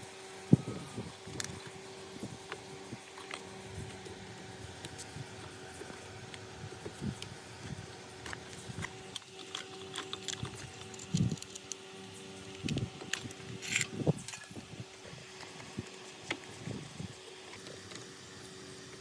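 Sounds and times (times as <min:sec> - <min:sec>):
faint steady hum: 0:00.0 - 0:19.0
screwdriver clicks and scrapes: 0:12.5 - 0:14.5.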